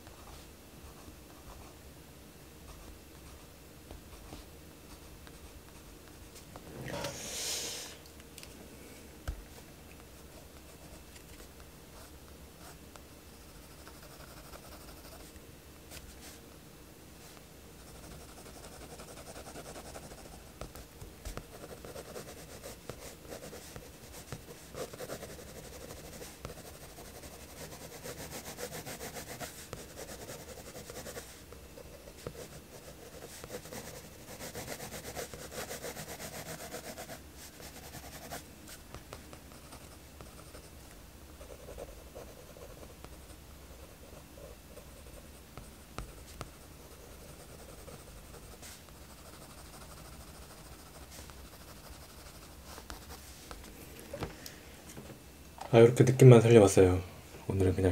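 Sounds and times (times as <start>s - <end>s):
pencil scratching on paper: 13.4s - 15.3s, 17.8s - 38.9s, 39.5s - 40.8s, 41.4s - 53.3s.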